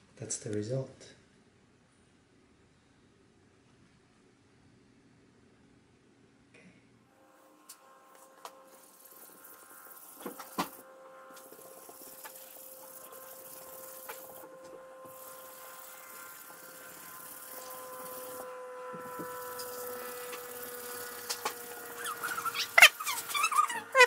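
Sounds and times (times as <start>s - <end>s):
brush scrubbing mesh screen: 8.7s - 24.0s.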